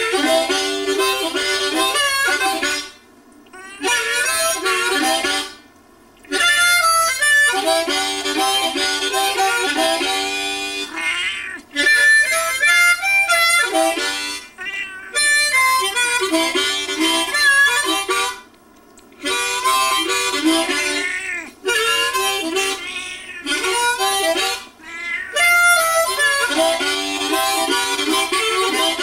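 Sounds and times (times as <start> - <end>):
harmonica blues phrases: 0.0 - 18.5, 19.2 - 29.0
cat yowling: 3.5 - 4.2, 10.9 - 11.8, 14.6 - 15.3, 20.8 - 21.6, 22.6 - 23.6, 24.8 - 25.6.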